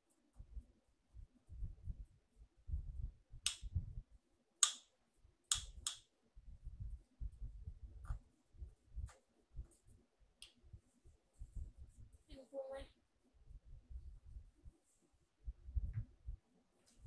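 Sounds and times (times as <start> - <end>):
wooden stick clicking in plastic cup: 3.5 - 3.7, 4.6 - 4.9, 5.5 - 6.1.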